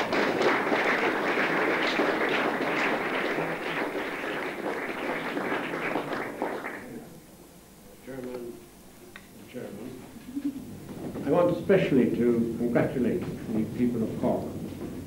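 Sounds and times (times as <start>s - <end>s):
crowd applauding: 0.0s - 7.0s.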